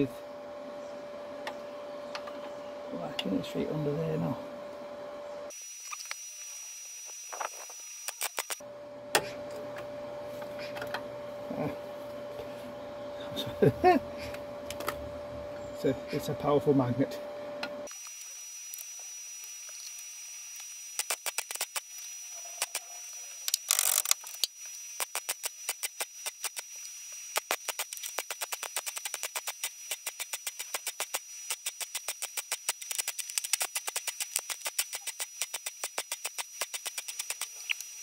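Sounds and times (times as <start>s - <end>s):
welder arc crackling: 5.5s - 8.6s, 17.9s - 38.0s.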